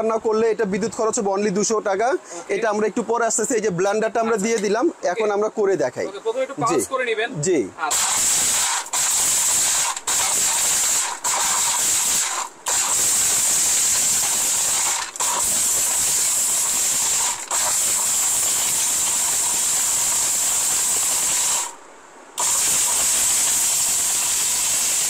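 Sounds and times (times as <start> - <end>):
blender motor whirring: 7.9 - 21.8, 22.4 - 25.0.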